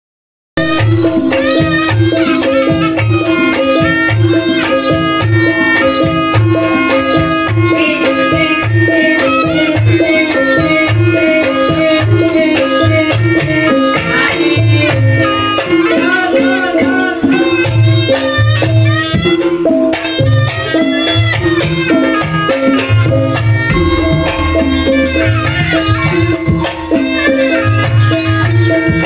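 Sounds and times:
gamelan melody: 0.6 - 13.8, 23.0 - 29.0
hand drum beating: 21.4 - 29.0
sustained gong tones: 23.5 - 28.7.

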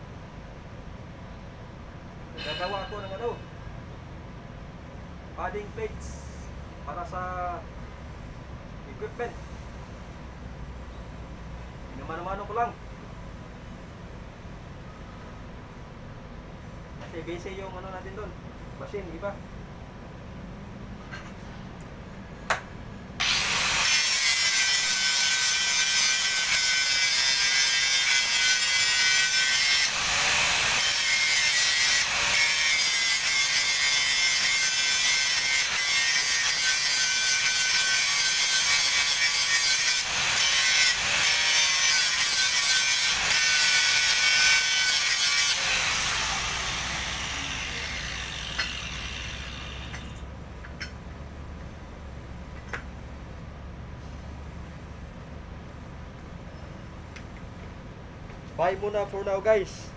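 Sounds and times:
angle grinder grinding steel: 23.2 - 50.2.

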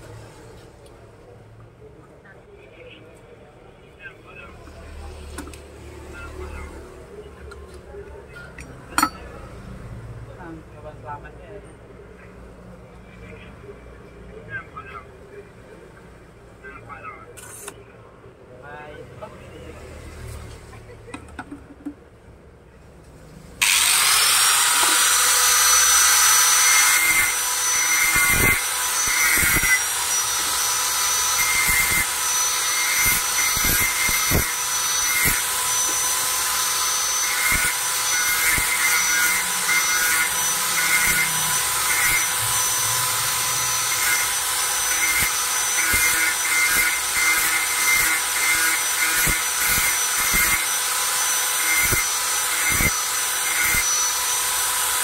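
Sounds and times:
grinder disc grinding steel: 8.4 - 9.5, 23.6 - 55.0
angle grinder whining: 23.6 - 55.0.

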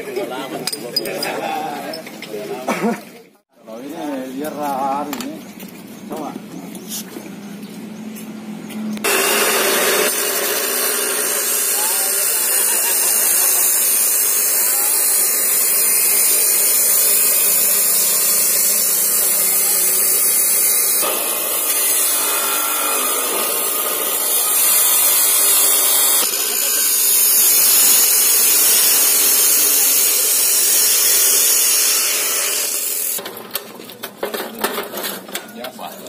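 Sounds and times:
cut-off saw grinding metal: 9.0 - 33.2.

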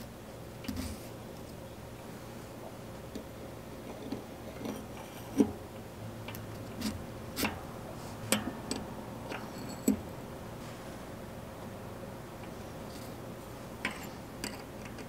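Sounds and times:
metal cogs clicking and clinking: 13.8 - 15.0.

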